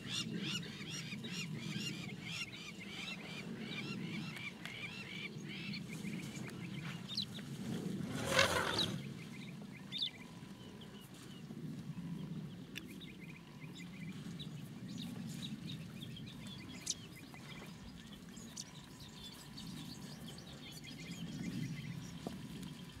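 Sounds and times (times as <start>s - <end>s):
small birds chirping and trilling: 12.2s - 23.0s.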